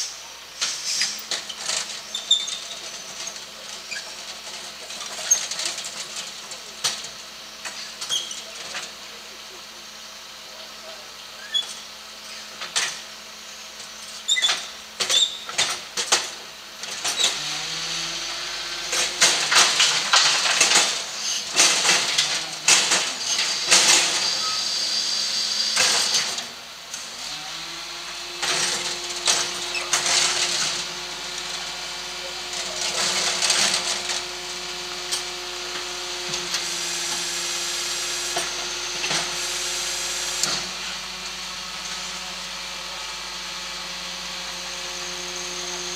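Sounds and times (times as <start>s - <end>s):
truck engine and hydraulics whining: 0.0s - 45.9s
metal bins banging and clanking: 18.8s - 24.4s, 28.4s - 31.7s.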